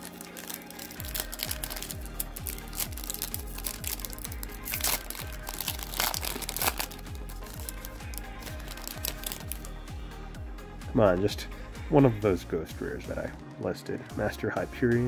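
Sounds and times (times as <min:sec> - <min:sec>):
foil wrapper tearing and crinkling: 0:00.0 - 0:09.7
background music with low beat: 0:00.0 - 0:15.0.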